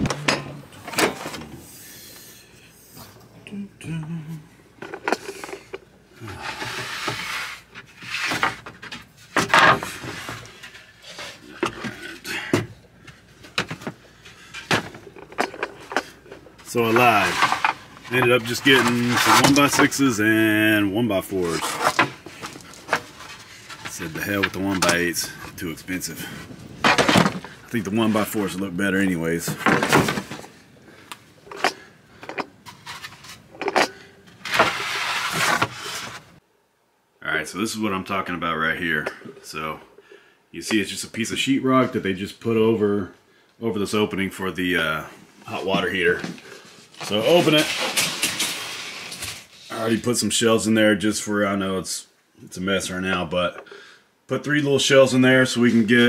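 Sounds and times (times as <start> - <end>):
handling noise knocks and rustling: 26.6 - 28.3.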